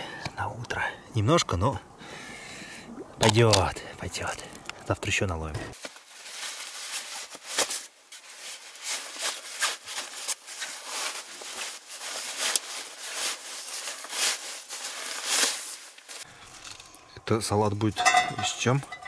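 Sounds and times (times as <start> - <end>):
cookware clicks taps and scrapes: 18.0 - 19.0.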